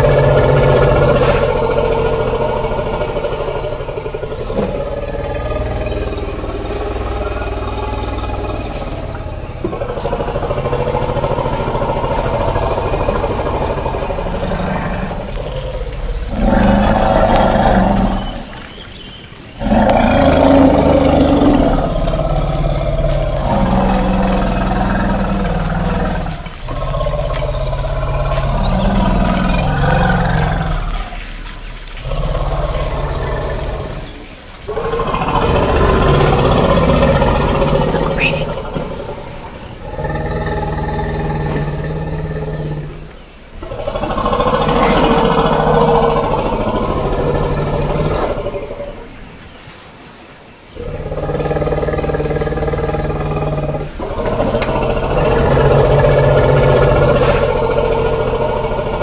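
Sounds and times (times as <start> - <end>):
elephants calling: 0.0 - 42.5.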